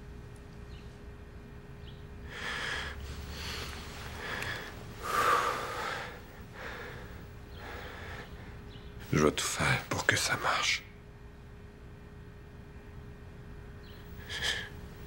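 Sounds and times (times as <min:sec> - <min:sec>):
person sniffling and breathing heavily: 0:02.3 - 0:08.5, 0:14.2 - 0:15.0.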